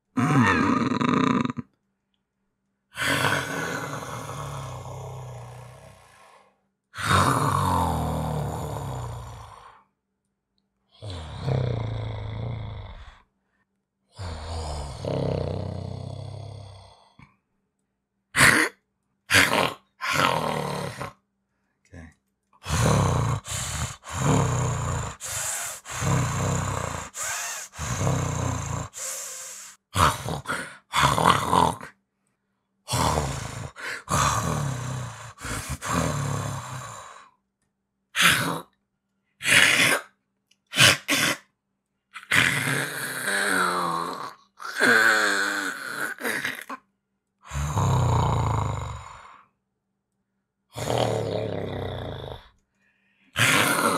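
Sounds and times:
man growling roar: 0.1 - 1.6, 3.0 - 6.1, 19.3 - 21.1, 22.0 - 29.0, 30.0 - 31.9, 32.9 - 36.7, 53.4 - 53.9
breathy hissing bursts: 22.7 - 29.9
sharp breathy burst: 25.2 - 26.2, 27.1 - 28.1, 28.9 - 29.9.

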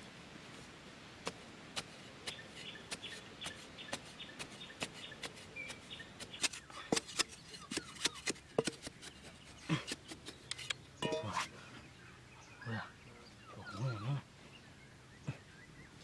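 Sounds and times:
digging tool chopping sandy soil: 1.2 - 11.4.

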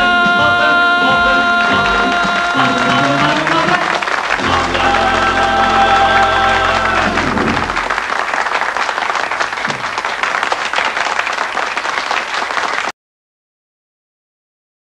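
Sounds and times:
held music chord: 0.0 - 7.9
audience applauding: 0.1 - 12.9.

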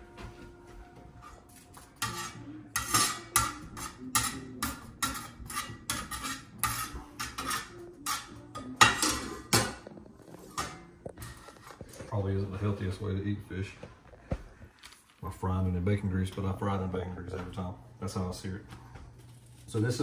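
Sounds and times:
metal spatula scraping skillet: 1.2 - 12.3.

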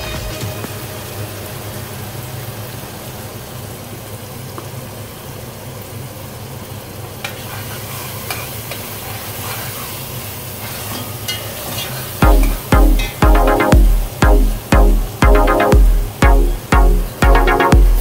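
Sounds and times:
food sizzling in a pot: 0.0 - 13.2.

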